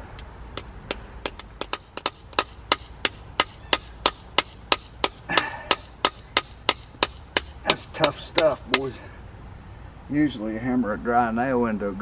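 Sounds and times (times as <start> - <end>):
small hammer tapping wooden peg: 0.1 - 9.0.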